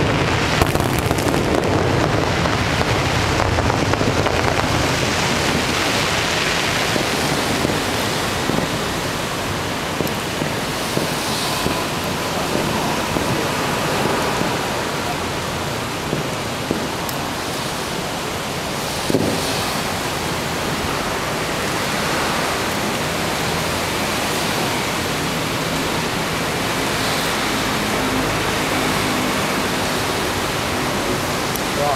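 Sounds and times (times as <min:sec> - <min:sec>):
sharp firework report: 0:00.0 - 0:23.6
fountain fireworks hissing: 0:00.0 - 0:31.9
faint firework pops: 0:00.6 - 0:01.8, 0:10.0 - 0:11.9, 0:19.1 - 0:19.5.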